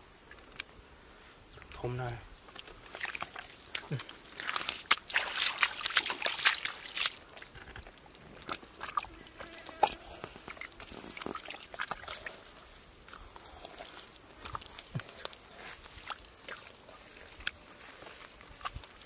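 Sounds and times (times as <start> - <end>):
fish slapping in basket: 2.9 - 7.8.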